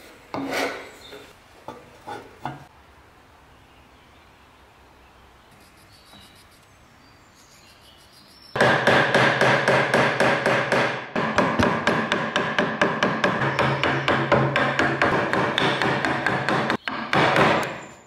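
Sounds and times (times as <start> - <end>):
hammer striking steel chisel: 8.6 - 18.0.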